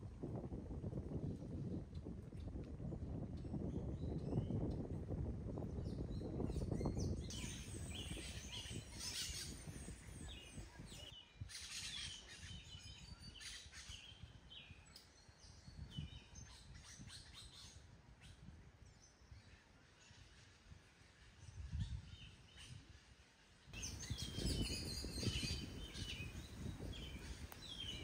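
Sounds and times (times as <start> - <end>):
small birds chirping: 5.7 - 17.7, 23.8 - 28.0.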